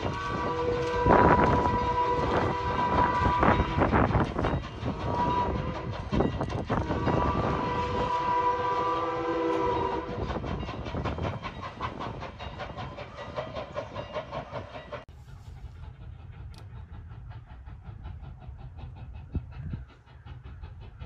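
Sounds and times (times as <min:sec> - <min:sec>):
steam locomotive chime whistle: 0:00.0 - 0:15.1
train running with even beat: 0:00.0 - 0:21.0.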